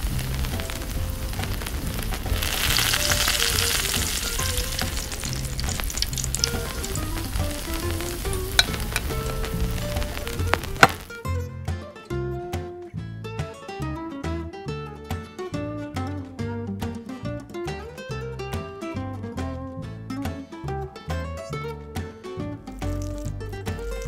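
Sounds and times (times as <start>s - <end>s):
vegetables sizzling in wok: 0.0s - 11.2s, 22.7s - 24.0s
soft background music: 0.0s - 24.0s
spoon clicking against pan: 8.5s - 9.2s.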